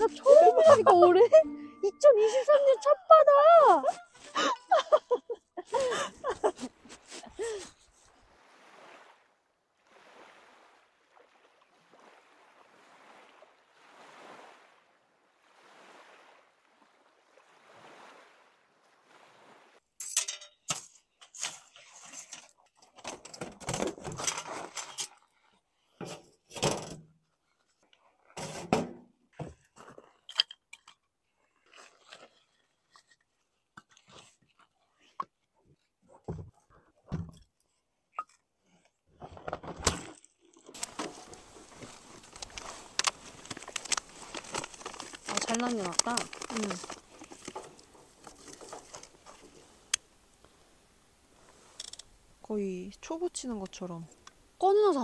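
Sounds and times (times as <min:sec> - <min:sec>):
small waves on pebbly shore: 0:07.7 - 0:20.0, 0:40.6 - 0:51.8
metal clanks and rattles: 0:20.0 - 0:25.1.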